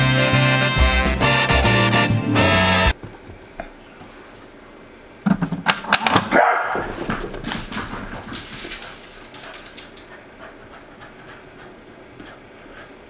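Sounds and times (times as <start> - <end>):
dog barking excitedly: 6.1 - 12.4
running footsteps: 6.8 - 13.0.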